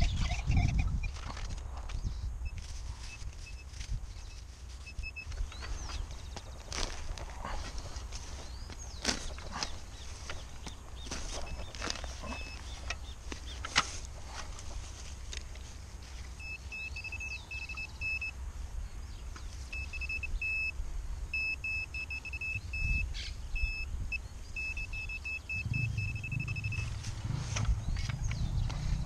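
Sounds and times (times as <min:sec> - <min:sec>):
metal detector beeping: 0:00.0 - 0:01.2, 0:02.1 - 0:14.4, 0:16.3 - 0:18.4, 0:19.7 - 0:27.8
low rumble: 0:25.5 - 0:29.0.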